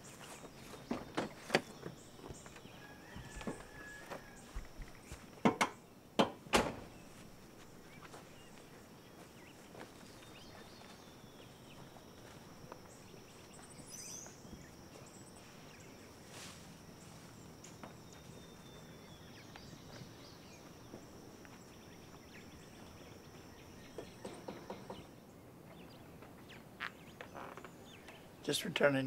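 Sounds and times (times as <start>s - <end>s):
faint footsteps: 0.0s - 5.6s, 6.8s - 28.3s
high insect drone: 6.6s - 25.2s
bird chirping: 6.8s - 29.0s
knocking on a door: 24.0s - 25.1s.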